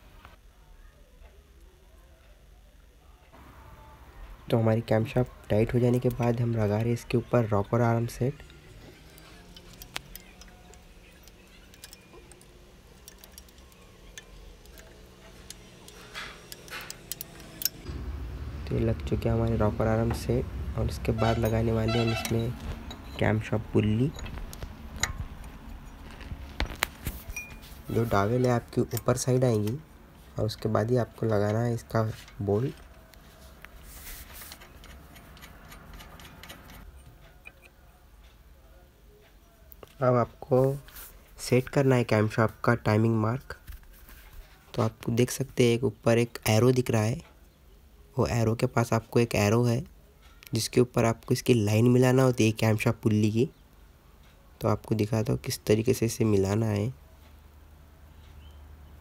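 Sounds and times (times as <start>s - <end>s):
faint low hum: 0.0s - 59.0s
spanner clicking on bolt: 8.0s - 17.9s, 34.5s - 37.8s
scraping rustle: 32.0s - 36.9s.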